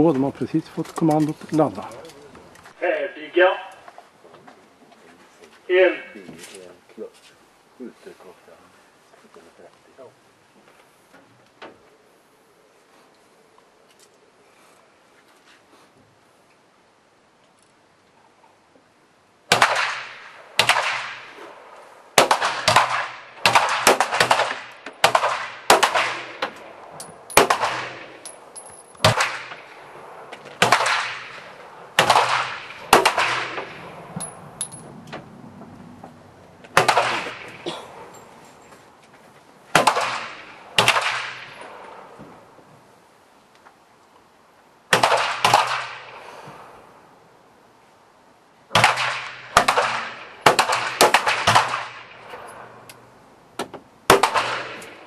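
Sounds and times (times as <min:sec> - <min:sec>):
pistol shots ringing out: 0:19.5 - 0:21.3, 0:22.2 - 0:26.7, 0:27.3 - 0:28.3, 0:29.0 - 0:29.8, 0:30.6 - 0:33.9, 0:36.7 - 0:37.8, 0:39.7 - 0:41.8, 0:44.9 - 0:46.2, 0:48.7 - 0:52.7, 0:54.1 - 0:55.0.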